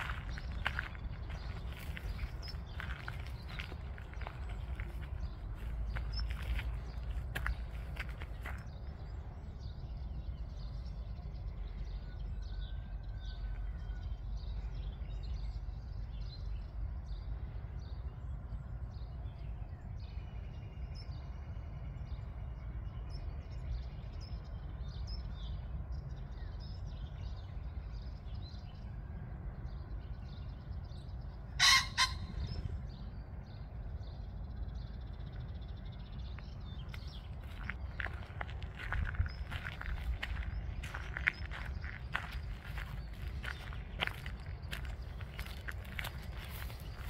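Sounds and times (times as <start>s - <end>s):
songbirds chirping: 0.0s - 47.0s
steady low rumble: 0.0s - 47.0s
pheasant call: 31.5s - 32.9s.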